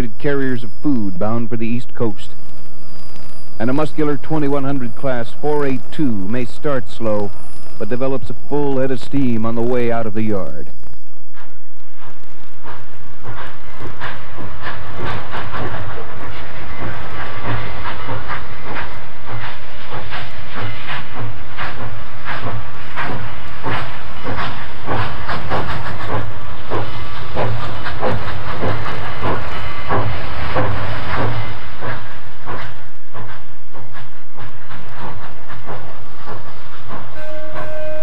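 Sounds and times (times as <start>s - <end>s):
steam locomotive chuffing: 3.6s - 10.7s, 12.0s - 38.0s
steam hissing: 11.4s - 38.0s.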